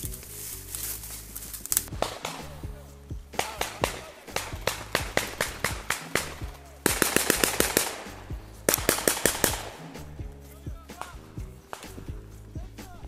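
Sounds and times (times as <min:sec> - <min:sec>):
background music with steady beat: 0:00.0 - 0:13.0
automatic rifle fire: 0:02.0 - 0:02.6, 0:03.4 - 0:09.8.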